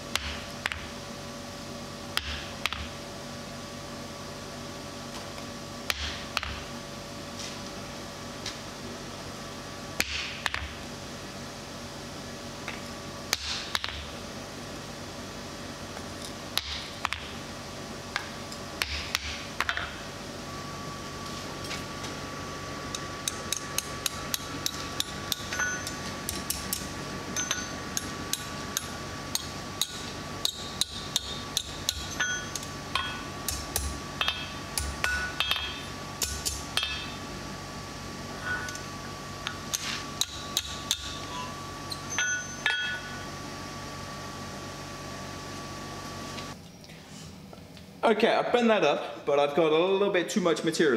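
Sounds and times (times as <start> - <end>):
hammer striking steel on anvil: 27.4 - 37.2, 39.7 - 43.2.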